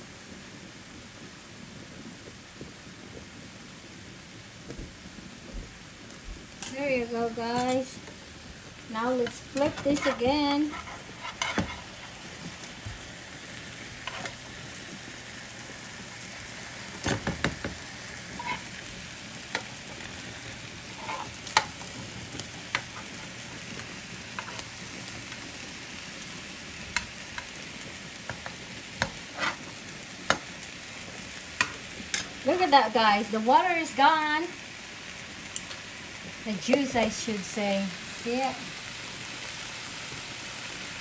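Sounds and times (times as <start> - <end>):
sausages sizzling in a pan: 0.0 - 41.0
metal spatula scraping a pan: 9.2 - 12.2, 18.4 - 18.7, 20.9 - 21.4, 29.1 - 29.7.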